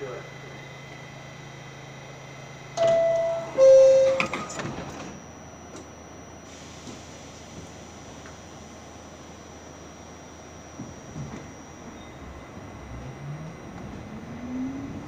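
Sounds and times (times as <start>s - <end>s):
two-tone door chime: 2.8s - 6.1s.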